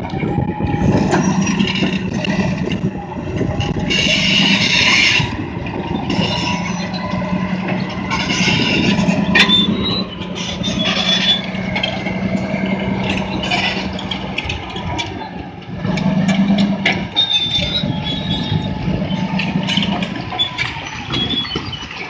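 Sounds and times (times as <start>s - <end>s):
diesel engine running under load: 0.0s - 22.0s
steel tracks clanking and squealing: 0.0s - 22.0s.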